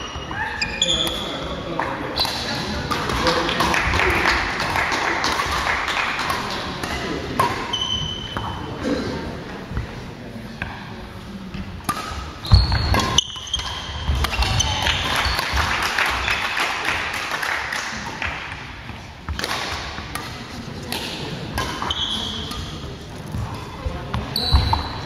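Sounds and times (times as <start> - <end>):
racket striking shuttlecock: 11.8 - 16.2, 19.3 - 25.0
shoes squeaking on wooden floor: 12.4 - 13.7.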